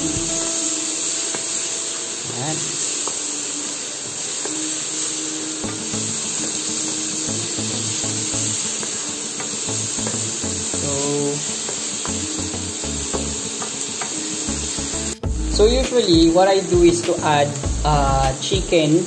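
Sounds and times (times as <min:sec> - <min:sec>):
background music: 0:00.0 - 0:19.0
mushrooms frying in a pan: 0:00.0 - 0:19.0.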